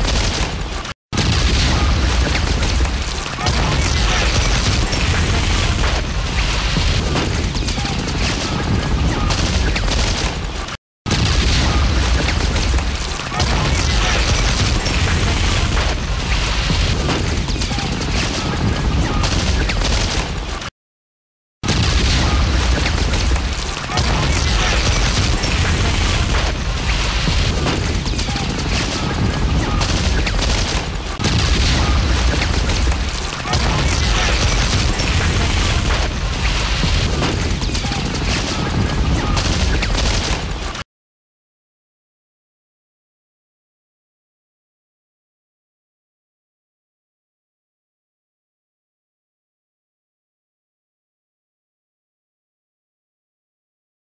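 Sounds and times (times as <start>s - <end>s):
booming explosions: 0.0s - 20.7s, 21.6s - 40.8s
rapid gunfire: 0.0s - 20.7s, 21.6s - 40.8s.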